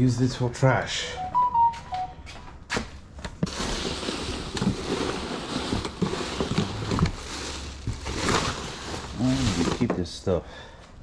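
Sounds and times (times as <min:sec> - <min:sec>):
trash rustling and crinkling: 0:02.7 - 0:10.4.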